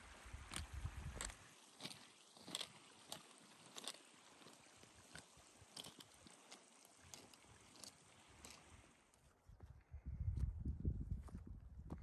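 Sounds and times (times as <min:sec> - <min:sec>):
soft steady hiss: 0:00.0 - 0:09.5
trekking poles clicking on stones: 0:00.3 - 0:08.8.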